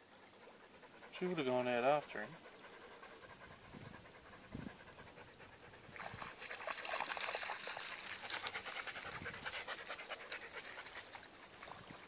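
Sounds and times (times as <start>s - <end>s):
dog panting: 0.1s - 11.8s.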